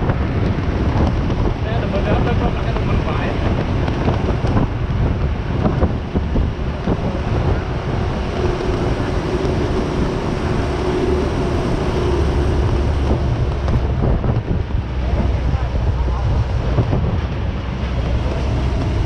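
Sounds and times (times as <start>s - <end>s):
vehicle running: 0.0s - 19.0s
wind on microphone: 0.0s - 19.0s.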